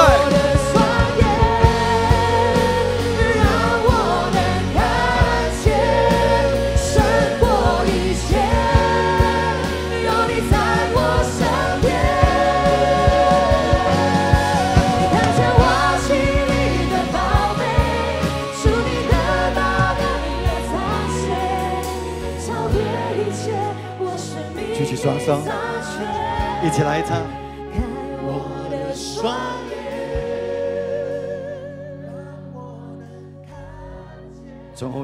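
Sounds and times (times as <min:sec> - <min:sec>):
instrumental accompaniment with beat: 0:00.0 - 0:23.8
worship song singing: 0:00.0 - 0:35.0.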